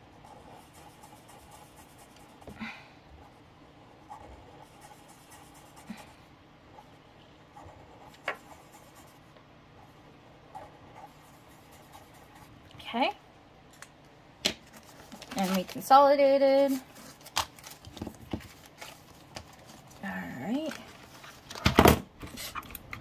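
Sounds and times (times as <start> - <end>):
marker scratching on paper: 0.2 - 2.4, 4.0 - 6.1, 7.6 - 9.2, 10.5 - 12.5.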